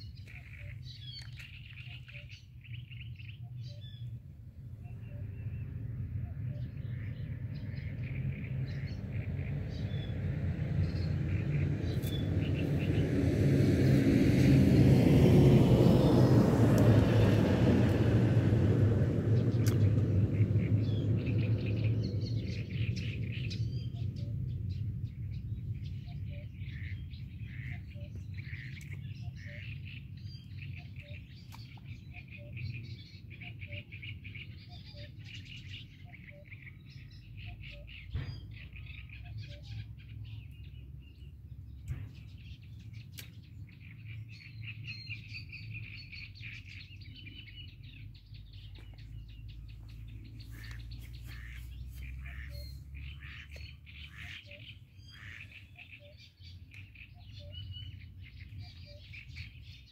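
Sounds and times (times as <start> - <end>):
small birds chirping: 0.0 - 14.5, 15.9 - 59.9
low steady rumble: 0.0 - 33.2, 45.7 - 59.9.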